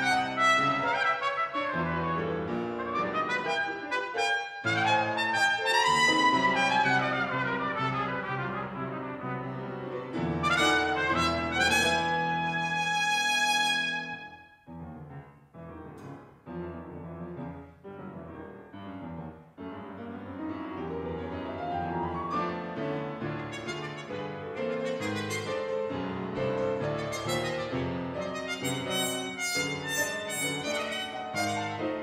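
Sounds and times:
trumpet: 0:00.0 - 0:14.6, 0:23.2 - 0:32.0
grand piano playing: 0:00.0 - 0:32.0.

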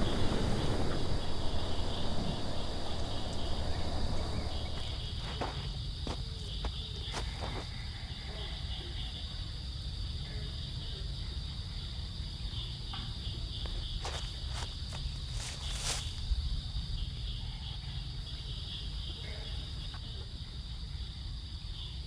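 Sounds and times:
low rumble: 0:00.0 - 0:06.6
dry brush crackling: 0:00.0 - 0:07.7, 0:14.0 - 0:16.3
insect chorus: 0:00.0 - 0:22.0.

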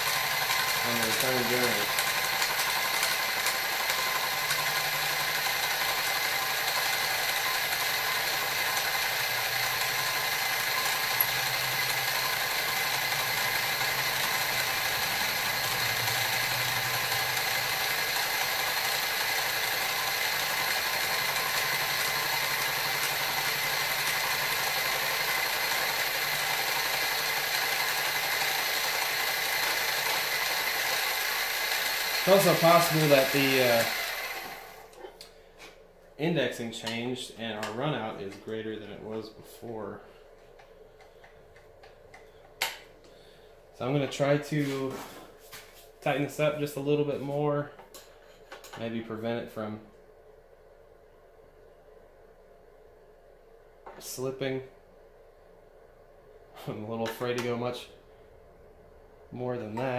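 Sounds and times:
milling machine whining: 0:00.0 - 0:35.1.

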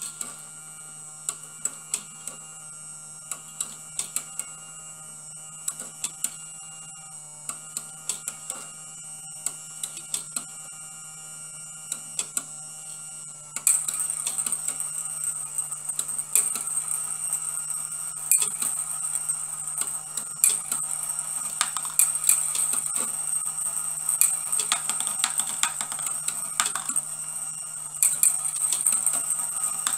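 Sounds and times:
small motor whine: 0:00.0 - 0:29.9
steel balls clicking and rattling: 0:18.2 - 0:29.9.

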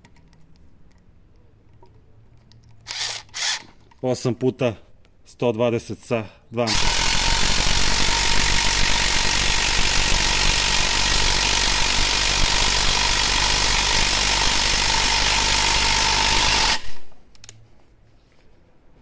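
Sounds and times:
impact driver hammering: 0:06.7 - 0:17.0.

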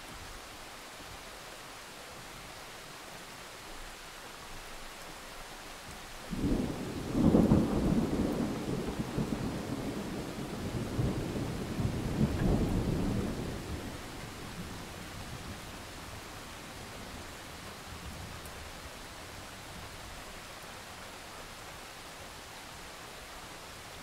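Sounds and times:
steady rain: 0:00.0 - 0:24.0
rolling thunder rumble: 0:06.3 - 0:15.8.

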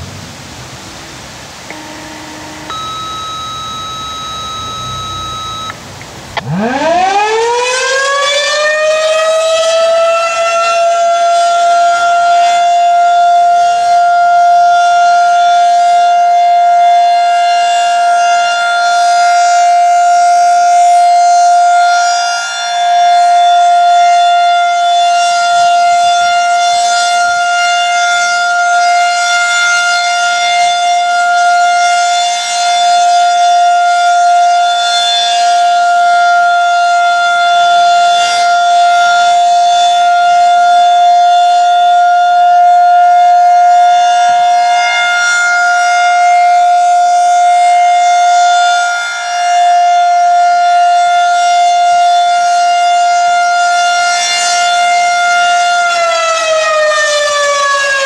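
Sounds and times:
electronic siren steady tone: 0:01.6 - 0:58.0.

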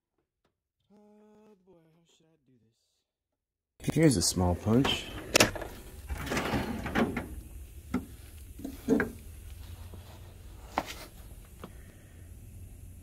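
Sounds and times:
steel drawer sliding clatter: 0:04.7 - 0:07.4.

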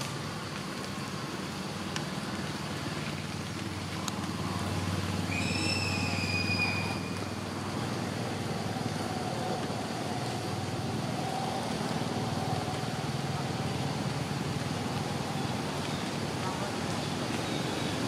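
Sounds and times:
low outdoor rumble: 0:00.0 - 0:18.0
high whistle-like call: 0:05.2 - 0:07.3.

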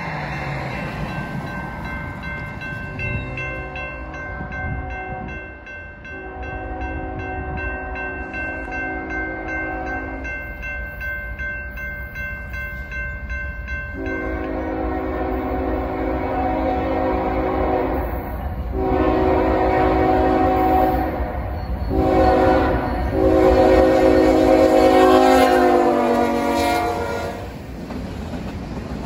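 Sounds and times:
railroad crossing bell ringing: 0:00.0 - 0:27.7
train rumble: 0:00.0 - 0:29.0
train horn blasts: 0:06.1 - 0:10.3, 0:14.0 - 0:21.3, 0:21.9 - 0:27.6.

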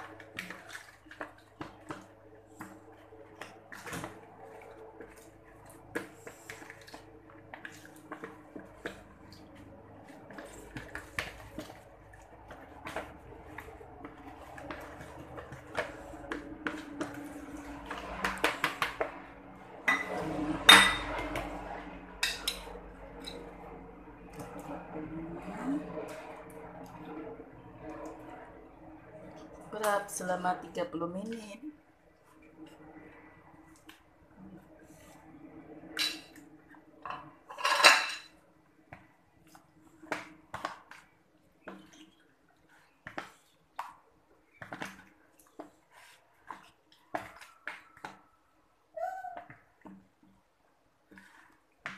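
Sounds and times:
spoon scraping plastic bowl: 0:07.6 - 0:19.2.

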